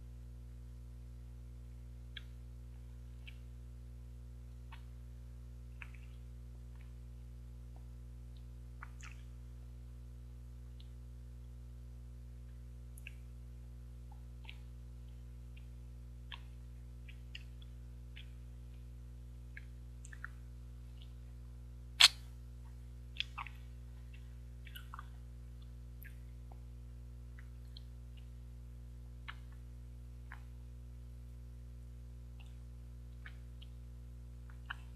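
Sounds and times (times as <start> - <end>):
steady low hum: 0.0 - 34.9
lip and tongue clicks: 2.1 - 2.4, 3.2 - 3.5, 5.8 - 6.2, 7.7 - 9.3, 13.0 - 13.3, 16.3 - 18.8, 19.5 - 20.4, 22.0 - 22.3, 23.2 - 26.7, 29.2 - 29.6, 32.4 - 33.8.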